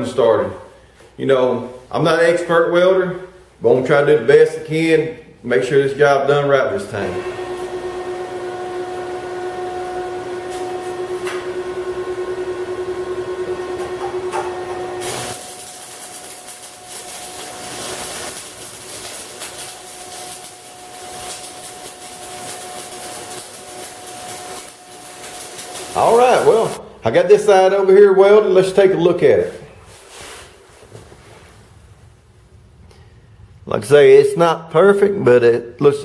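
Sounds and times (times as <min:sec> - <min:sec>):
welder humming: 0:06.8 - 0:27.0
welding arc crackling sizzle: 0:07.3 - 0:11.8, 0:14.9 - 0:27.5.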